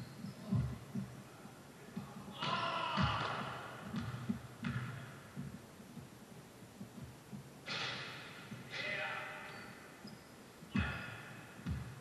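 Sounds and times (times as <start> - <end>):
basketball bouncing on gym floor: 0.2 - 1.2, 2.0 - 6.1, 10.7 - 12.0.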